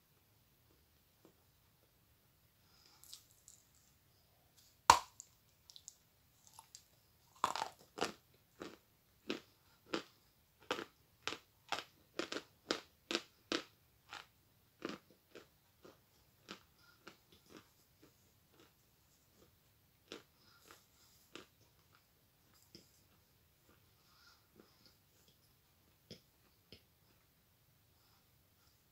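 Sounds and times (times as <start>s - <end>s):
bite snapping chalk: 4.9s - 5.2s
chalk crunching while chewed: 4.9s - 23.8s.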